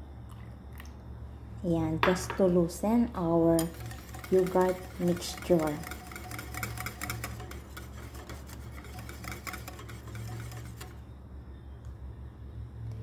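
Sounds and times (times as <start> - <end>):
wire whisk beating in a bowl: 3.5 - 11.0.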